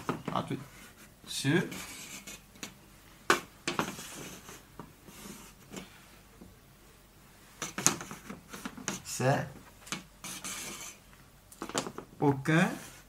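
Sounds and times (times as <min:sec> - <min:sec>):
chalk scraping on board: 0:00.7 - 0:02.4, 0:03.8 - 0:05.8, 0:10.2 - 0:11.0.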